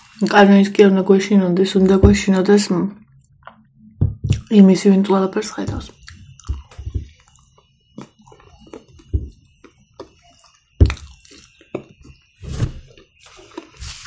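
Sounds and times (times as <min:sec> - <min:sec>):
chewing and mouth sounds: 0:06.0 - 0:11.6.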